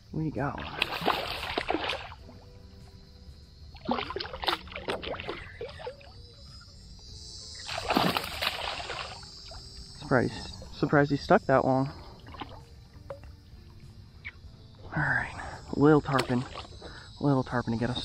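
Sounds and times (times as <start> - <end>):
fish thrashing and splashing: 0.6 - 2.2, 3.8 - 6.0, 7.6 - 9.4.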